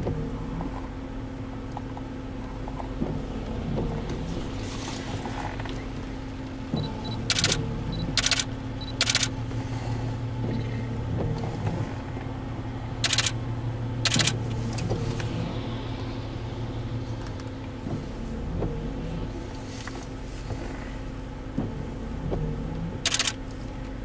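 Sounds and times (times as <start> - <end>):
vehicle engine idling: 0.0 - 24.0
short sharp clicks: 7.1 - 9.3, 13.0 - 13.4, 23.1 - 23.4.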